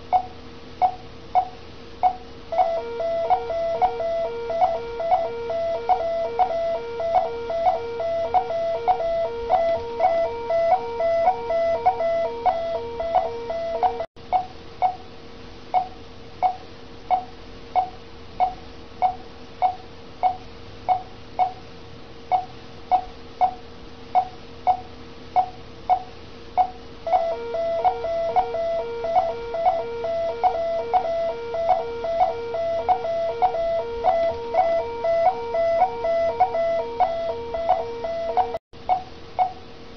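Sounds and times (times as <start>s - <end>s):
patient monitor pulse beeps: 0.1s - 14.5s, 25.4s - 26.0s, 26.6s - 39.6s
repeating alarm tone: 2.1s - 14.1s, 27.1s - 38.6s.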